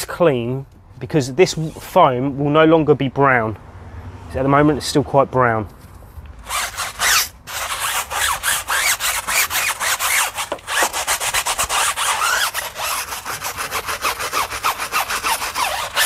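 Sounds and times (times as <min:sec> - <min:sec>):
brush scrubbing tyre: 0:06.4 - 0:16.0.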